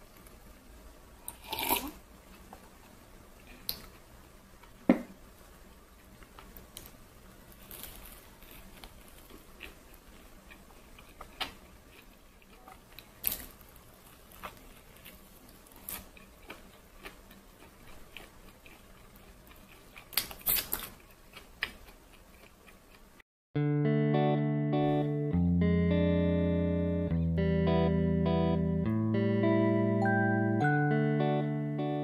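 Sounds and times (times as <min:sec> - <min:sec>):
toast being chewed: 0:06.0 - 0:23.1.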